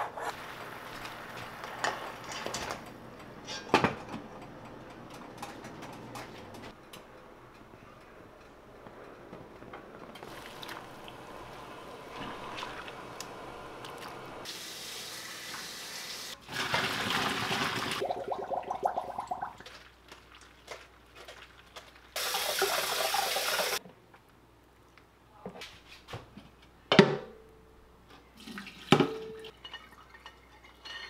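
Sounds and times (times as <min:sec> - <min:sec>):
pot boiling and bubbling: 0:00.2 - 0:04.7, 0:08.3 - 0:14.7, 0:16.4 - 0:23.8
water poured into sink: 0:10.2 - 0:11.2, 0:16.5 - 0:19.8
kitchen tap running: 0:10.2 - 0:19.5, 0:22.2 - 0:23.8.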